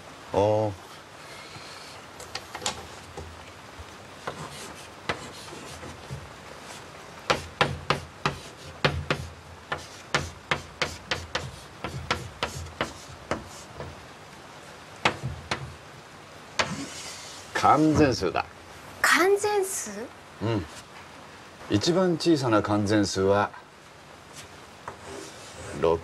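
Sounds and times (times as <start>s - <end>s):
chalk tapping and scratching: 4.2s - 14.0s, 15.0s - 15.8s, 16.6s - 18.0s, 24.3s - 25.9s.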